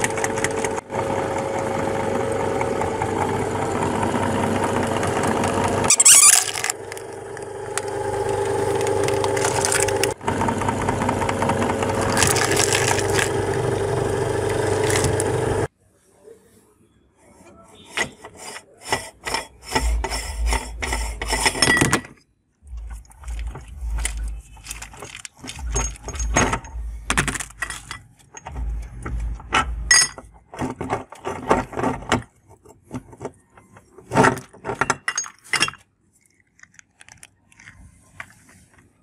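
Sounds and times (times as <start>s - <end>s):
metal clinks scrapes and knocks: 18.0s - 22.2s, 22.8s - 28.6s, 29.5s - 30.4s.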